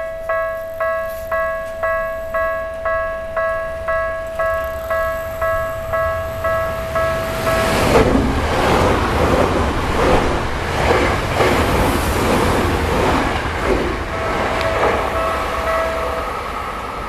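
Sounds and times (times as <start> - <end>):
level crossing bell dinging: 0.0 - 7.9, 14.2 - 16.5
train wheels rumbling and clattering: 3.9 - 17.0.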